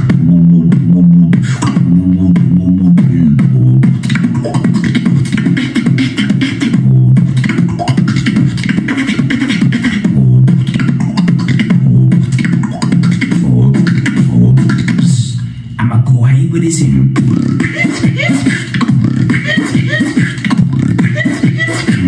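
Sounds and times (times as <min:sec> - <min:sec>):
low bass line: 0:00.0 - 0:04.0, 0:11.7 - 0:12.3, 0:13.4 - 0:15.5
person beatboxing: 0:00.0 - 0:22.0.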